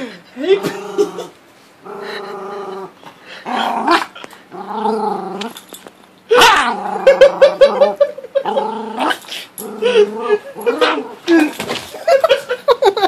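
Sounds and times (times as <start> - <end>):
small dog growling: 0.6 - 5.6, 6.3 - 11.4.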